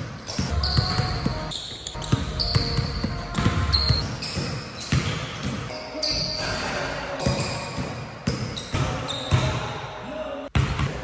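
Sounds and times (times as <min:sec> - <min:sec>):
basketball bouncing on wooden floor: 0:00.3 - 0:05.7.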